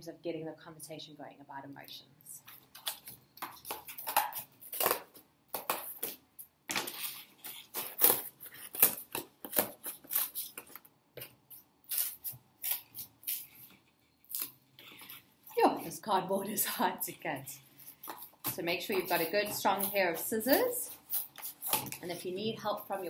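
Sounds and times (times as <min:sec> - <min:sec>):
scissors snipping cardboard: 0:18.0 - 0:22.0.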